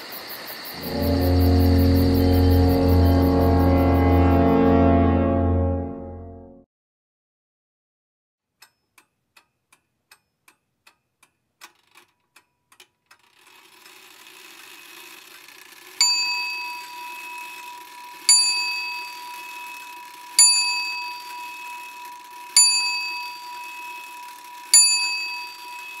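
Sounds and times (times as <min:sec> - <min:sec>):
low hum: 0:00.8 - 0:06.6.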